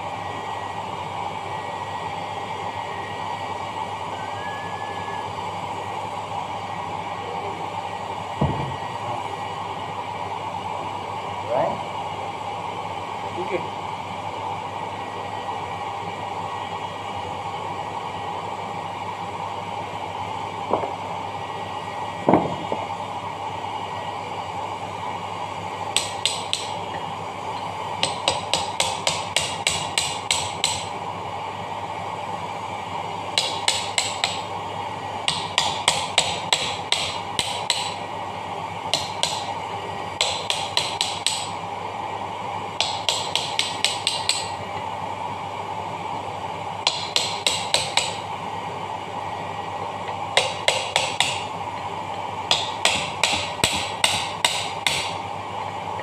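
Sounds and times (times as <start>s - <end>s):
hammer knocks on metal: 8.4s - 8.7s.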